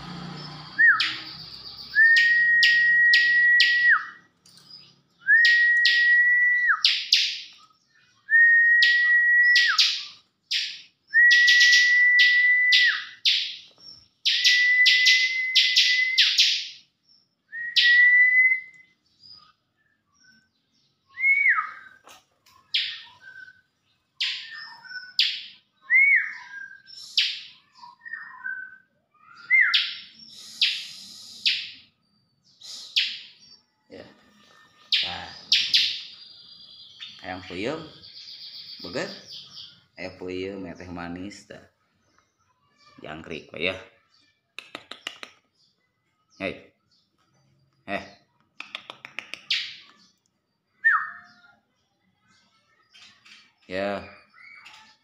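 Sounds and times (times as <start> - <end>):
bird chirping: 0.0 - 55.0
bird whistle: 0.7 - 4.2, 5.2 - 7.3, 8.3 - 13.4, 14.2 - 16.7, 17.5 - 18.9, 22.8 - 31.9, 50.8 - 51.4.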